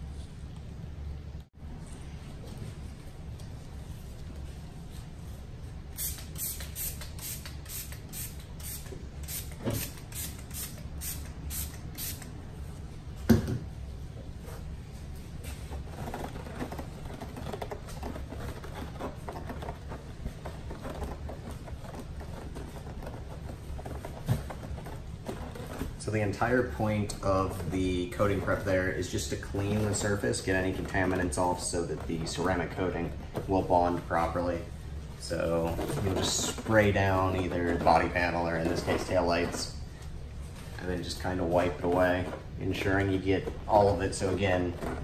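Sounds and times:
spray bottle hissing sprays: 5.9 - 12.3.

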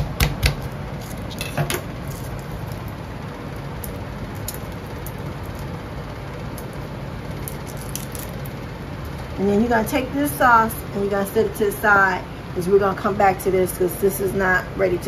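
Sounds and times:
garlic skin crackling: 0.0 - 9.2
appliance hum and hiss: 0.0 - 15.0.

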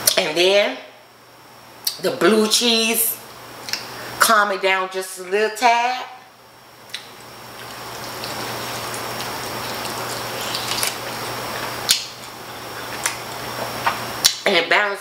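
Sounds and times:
chewing chicken wing: 6.9 - 14.0
wet mouth smacks: 6.9 - 14.4.

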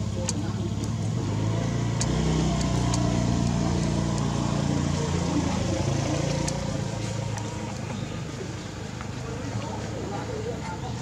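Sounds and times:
vehicle engine running: 0.0 - 11.0
faint clicks: 0.2 - 1.1.

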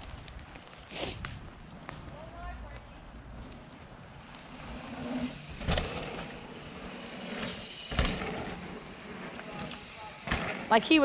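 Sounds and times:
bike tyres rumbling on dirt: 0.0 - 11.0
bike landing thumps: 4.9 - 11.0.

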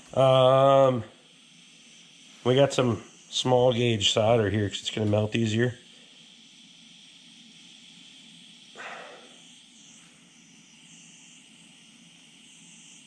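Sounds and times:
torch flame hissing: 0.0 - 13.0.

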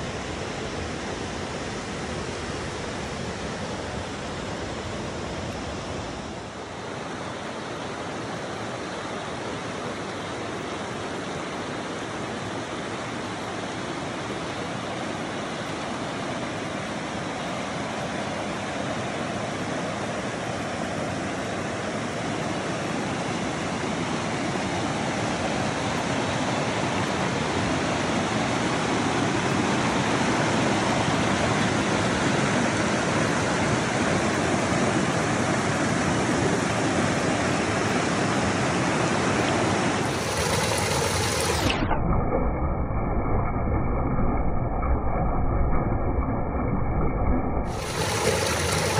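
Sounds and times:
stream rushing over rocks: 36.0 - 41.9, 47.7 - 48.9
water pouring down rock chute: 40.0 - 48.9.

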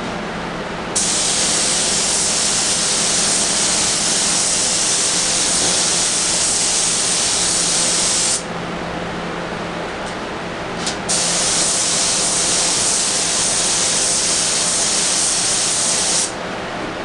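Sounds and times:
spray gun hissing: 1.0 - 8.4, 11.1 - 16.4.

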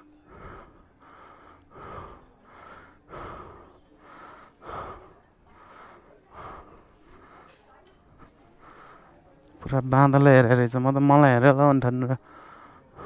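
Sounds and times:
person panting heavily: 0.0 - 9.2, 12.2 - 13.0.

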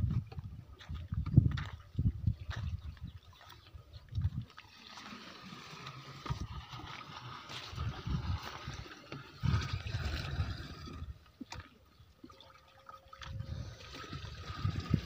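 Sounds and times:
muddy water sloshing and gurgling: 0.0 - 15.0
water pouring from a bucket: 4.4 - 15.0.

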